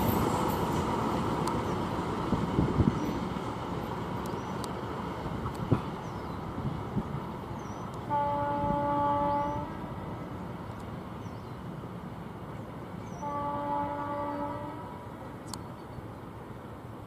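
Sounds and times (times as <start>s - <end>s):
locomotive horn blasts: 8.1s - 9.8s, 13.2s - 15.0s.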